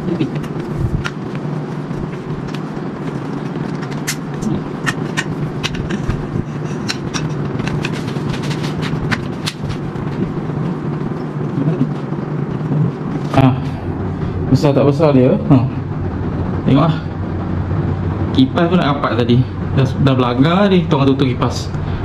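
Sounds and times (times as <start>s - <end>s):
low steady hum: 0.0s - 22.0s
metal poles clicking and knocking: 3.8s - 9.7s.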